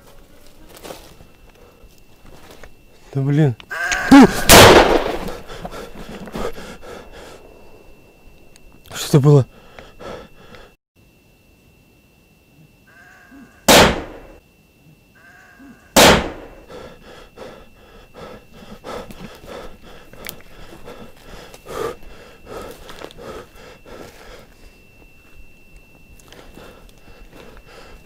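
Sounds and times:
loud bangs: 0:04.4 - 0:05.5
panting breath: 0:05.2 - 0:07.5, 0:09.5 - 0:10.8, 0:16.5 - 0:24.8, 0:26.3 - 0:28.0.

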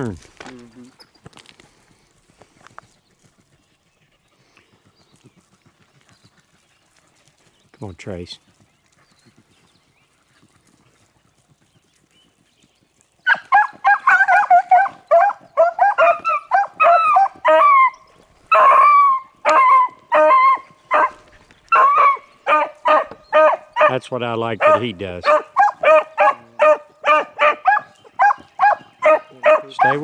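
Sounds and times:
hounds baying: 0:13.2 - 0:30.0.

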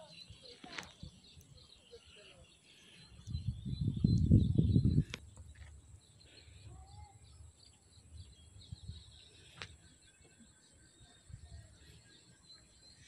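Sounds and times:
small bird chirps: 0:00.0 - 0:13.0
low rumbling on microphone: 0:03.3 - 0:05.2.

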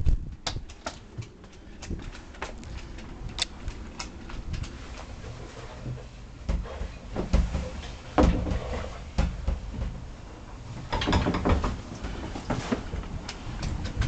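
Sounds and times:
knocks and thumps of handling: 0:05.8 - 0:10.0, 0:10.8 - 0:13.2.

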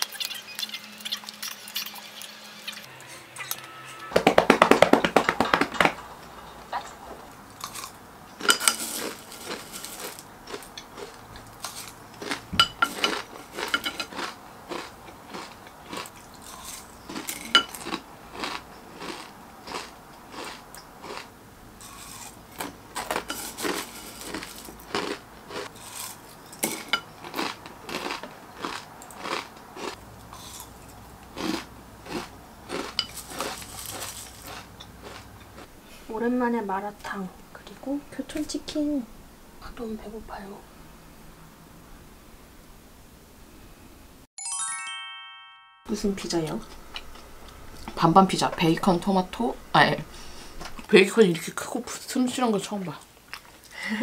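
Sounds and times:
hand patting a belly: 0:04.2 - 0:06.0
cornflakes crunched and chewed: 0:07.6 - 0:35.7.

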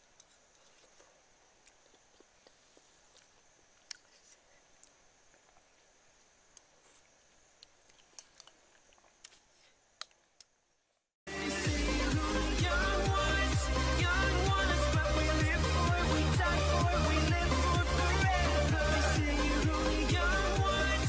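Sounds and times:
mouth clicks and smacks: 0:06.5 - 0:10.6
loud electronic music: 0:11.3 - 0:21.0.

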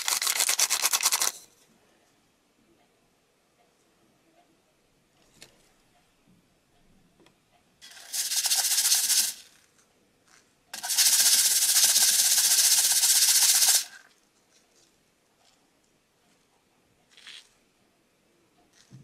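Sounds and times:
granules pouring onto plastic tray: 0:00.0 - 0:01.4, 0:07.8 - 0:09.7, 0:10.8 - 0:14.1.

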